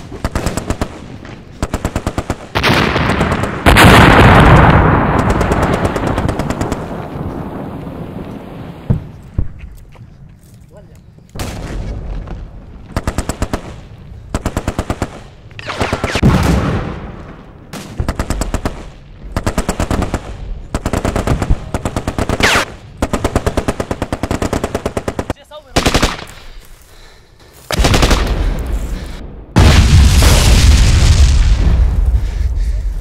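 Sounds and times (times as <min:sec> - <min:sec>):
automatic gunfire: 0:01.6 - 0:06.9, 0:18.0 - 0:26.3.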